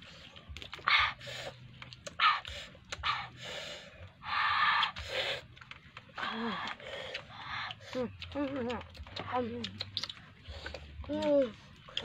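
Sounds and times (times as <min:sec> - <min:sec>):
sharp hissing breaths: 0:02.5 - 0:05.5.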